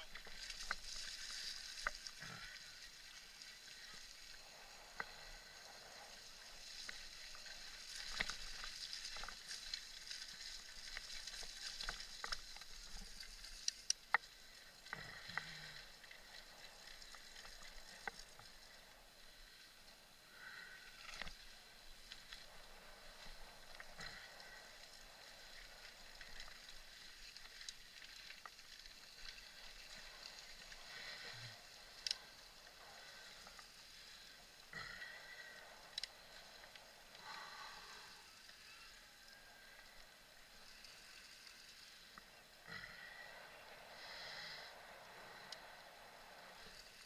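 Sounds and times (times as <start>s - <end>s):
bike tyres hissing: 40.5s - 47.0s.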